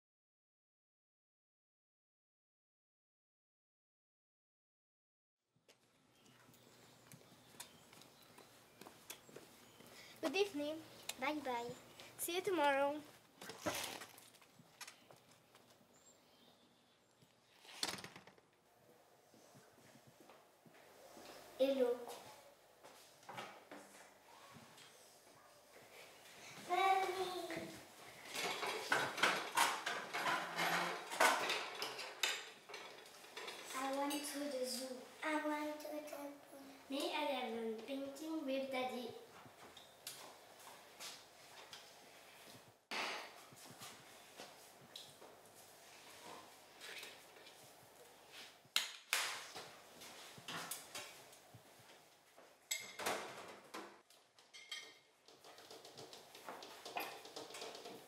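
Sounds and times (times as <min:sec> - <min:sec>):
chairs scraping on tiled floor: 0:13.4 - 0:14.2, 0:27.5 - 0:33.9
plates and tableware clattering: 0:28.3 - 0:33.7, 0:54.5 - 0:55.1
dishes and cutlery clinking: 0:52.7 - 0:53.1, 0:54.5 - 0:55.1.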